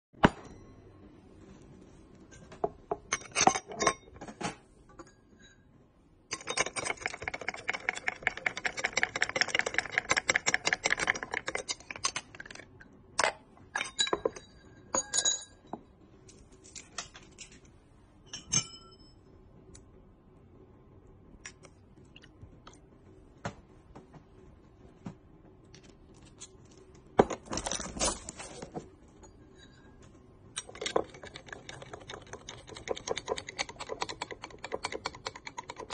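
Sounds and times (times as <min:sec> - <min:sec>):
ice and glassware clinking: 0:13.7 - 0:15.7.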